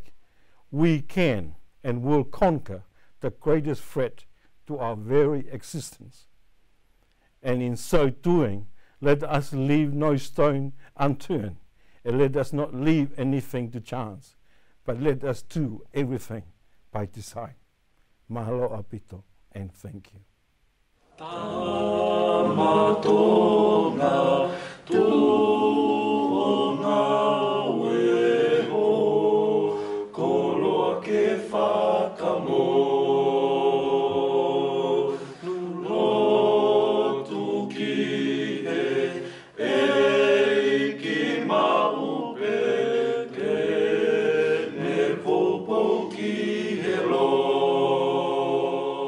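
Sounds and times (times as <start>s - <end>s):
choir singing in harmony: 21.1s - 49.0s.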